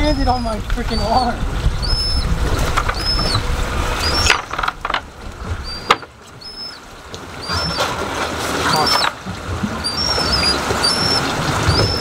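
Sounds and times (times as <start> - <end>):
low rumble of wind and water: 0.0 - 12.0
seabirds squeaking: 0.0 - 12.0.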